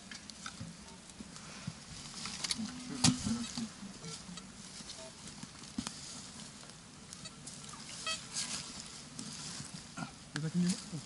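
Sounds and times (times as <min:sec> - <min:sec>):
footsteps in frozen leaves: 0:03.2 - 0:11.0.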